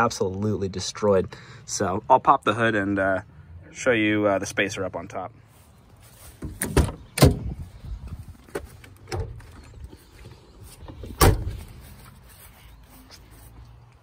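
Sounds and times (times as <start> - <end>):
car door clunking: 6.4 - 7.6, 10.9 - 11.7.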